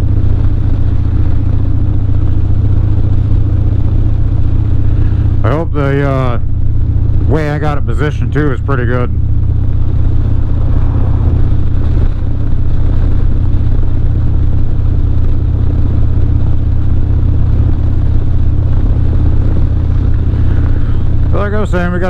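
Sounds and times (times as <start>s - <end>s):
motorcycle engine cruising: 0.0s - 22.0s
rush of wind noise: 9.2s - 22.0s.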